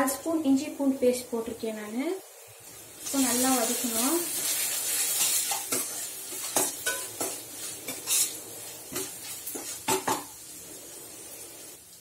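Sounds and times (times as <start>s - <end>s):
onions sizzling in oil: 0.0s - 12.0s
spoon scraping and knocking pan: 4.3s - 10.4s.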